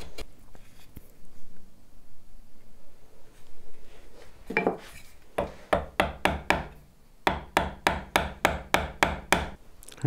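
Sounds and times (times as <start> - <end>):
chisel tapping into wood: 5.4 - 9.6.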